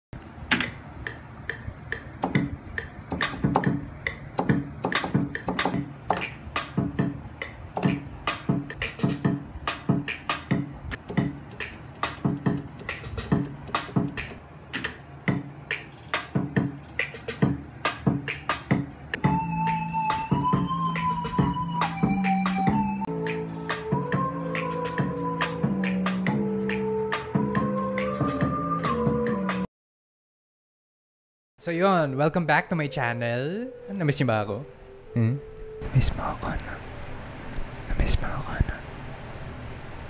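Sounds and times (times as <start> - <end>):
hip-hop beat: 0.6 - 29.7
keyboard: 1.5 - 29.7, 32.4 - 36.7
kick and bass thumps: 2.2 - 7.2, 7.8 - 11.4.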